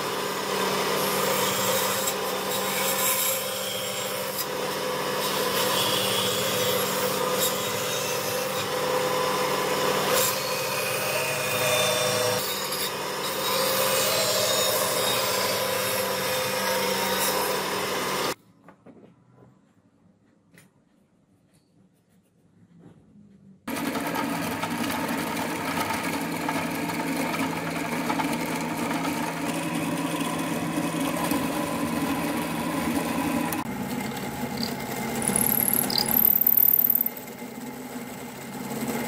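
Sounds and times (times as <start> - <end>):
saw blade cutting wood: 0.0 - 18.4, 23.7 - 37.6
bandsaw motor hum: 23.7 - 39.0.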